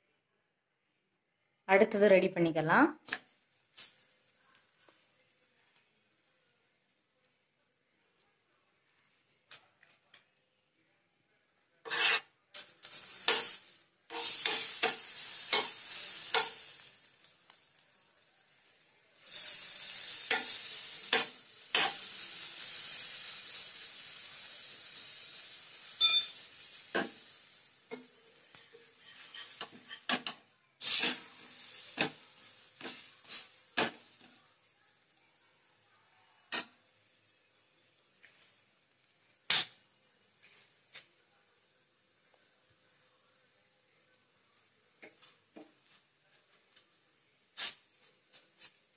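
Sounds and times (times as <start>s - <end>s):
flatbread sizzling in hot fat: 3.0s - 9.5s, 11.8s - 48.9s
steel spoon scraping a pan: 11.9s - 16.9s, 19.2s - 34.4s.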